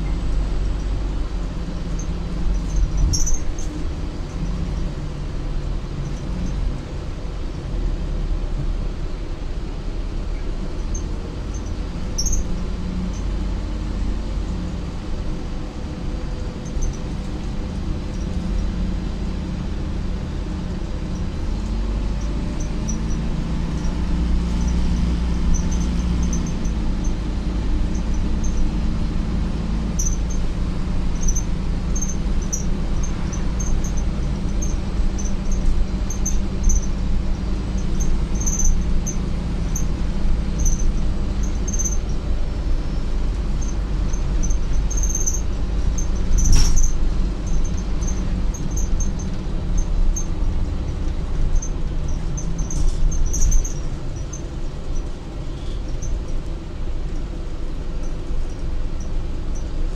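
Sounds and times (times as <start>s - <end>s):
bus engine and road drone: 0.0s - 59.9s
short high squeaks: 2.0s - 3.8s, 10.9s - 12.5s, 22.1s - 27.2s, 29.9s - 30.4s, 31.2s - 37.0s, 37.7s - 39.9s, 40.5s - 42.1s, 43.6s - 50.3s, 51.5s - 54.4s.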